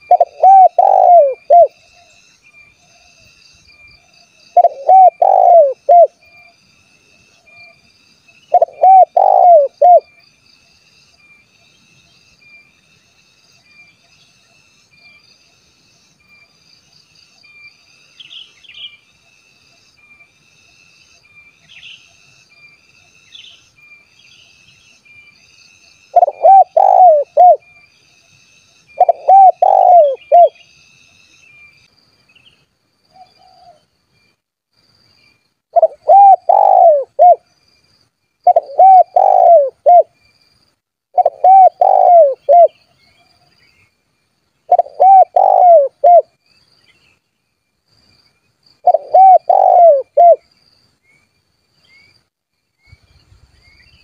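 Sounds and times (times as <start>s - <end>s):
dove cooing: 0.0s - 1.8s, 4.5s - 6.2s, 8.5s - 10.1s, 26.1s - 27.7s, 28.9s - 30.6s, 35.8s - 37.4s, 38.4s - 40.1s, 41.2s - 42.8s, 44.7s - 46.3s, 48.8s - 50.4s.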